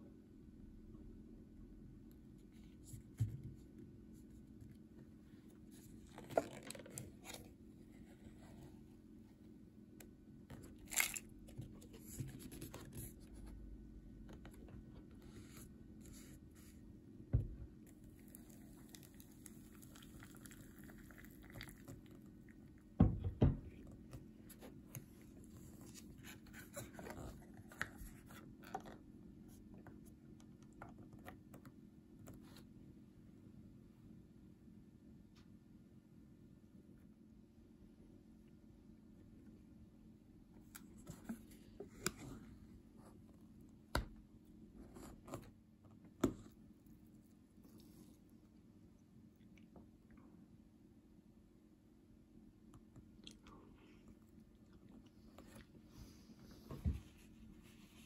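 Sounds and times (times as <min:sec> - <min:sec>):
paper lid crinkling and tearing: 0:10.7 - 0:11.3
cup knocking on wooden table: 0:23.0 - 0:23.7.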